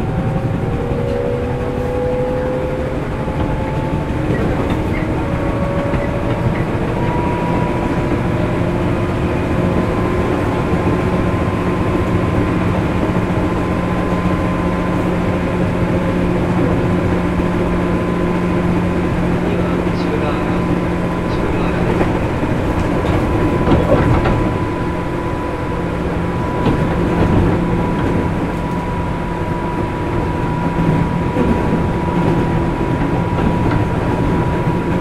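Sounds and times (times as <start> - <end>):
electric train motor whine: 0.0 - 35.0
wheels rumbling on rails: 0.0 - 35.0.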